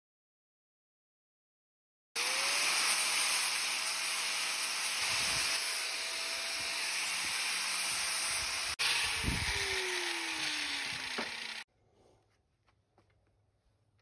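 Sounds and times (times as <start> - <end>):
grinder sanding wood: 2.2 - 11.6
grinder motor whine: 2.2 - 11.7.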